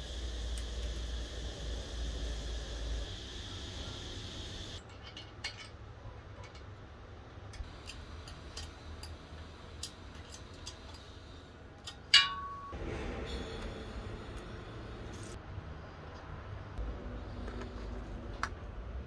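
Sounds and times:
tools clicking on metal: 7.6 - 9.2
loud ringing metal clink: 12.1 - 12.8.

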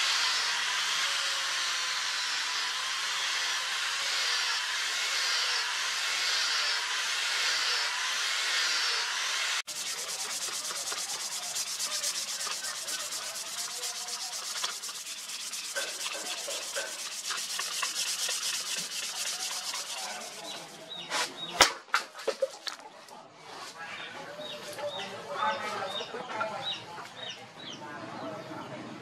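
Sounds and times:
angle grinder whirring: 0.0 - 20.9
abrasive rasping on wood: 9.6 - 20.9.

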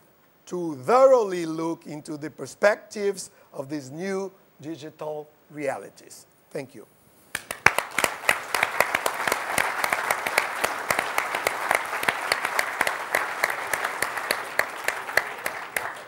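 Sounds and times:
audience applauding: 7.3 - 16.0.

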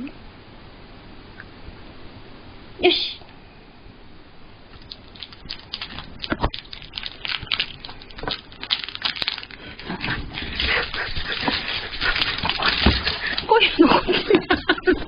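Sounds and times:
dog licking and chewing: 4.8 - 14.2.

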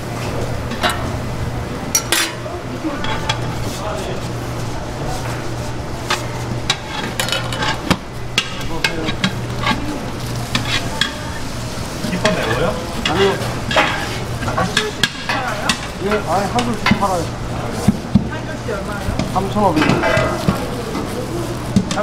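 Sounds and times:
steady low hum: 0.0 - 22.0
rice scraping and rustling: 3.0 - 15.0.

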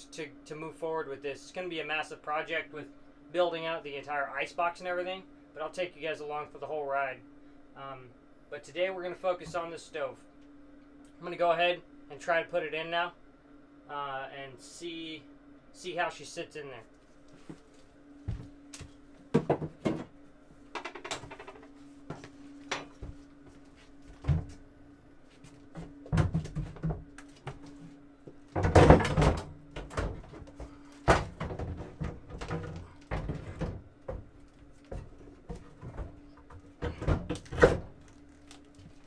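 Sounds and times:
faint steady hum: 0.0 - 39.0
knocks clunks and scrapes: 28.5 - 38.0.

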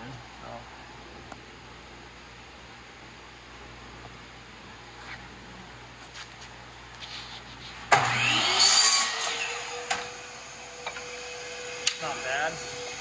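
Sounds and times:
saw blade cutting wood: 7.9 - 12.9
miter saw motor whining: 8.0 - 13.0.

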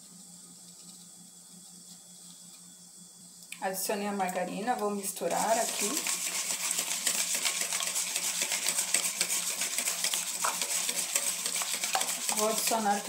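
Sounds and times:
whisk beating in metal bowl: 5.2 - 13.0.

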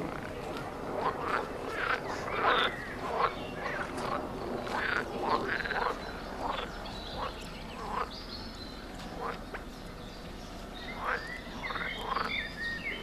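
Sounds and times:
chorus of animal calls: 1.0 - 8.1.

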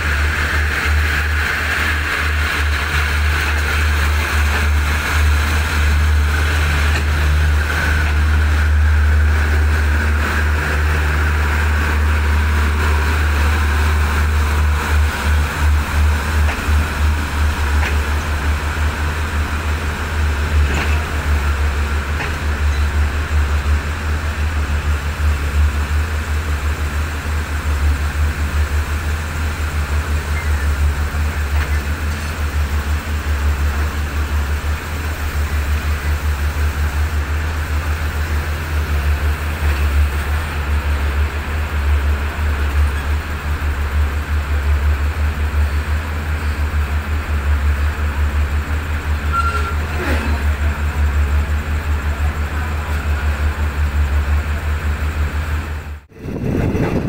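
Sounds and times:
train rolling past: 0.0 - 57.0.

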